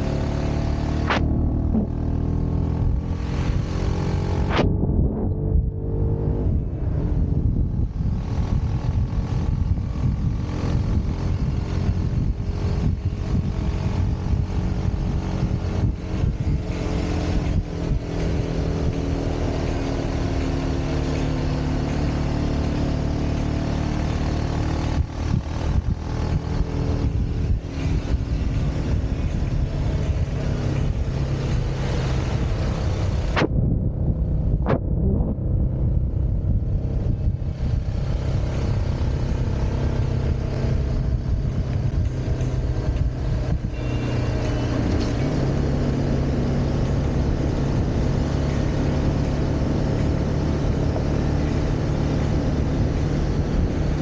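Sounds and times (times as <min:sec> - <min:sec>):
motorcycle engine running: 0:00.0 - 0:54.0
wind noise on microphone: 0:01.0 - 0:54.0.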